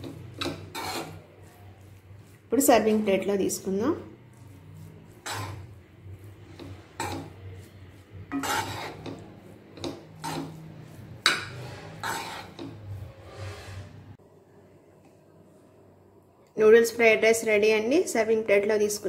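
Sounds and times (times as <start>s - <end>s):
spatula scraping a pan: 0.0s - 14.2s.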